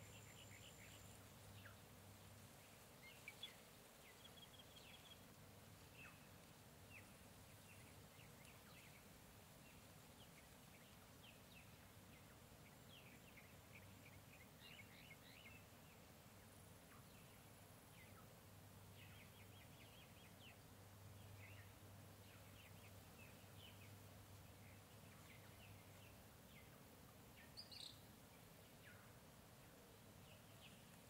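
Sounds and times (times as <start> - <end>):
steady hiss: 0.0 - 31.0
bird chirps: 27.4 - 28.1.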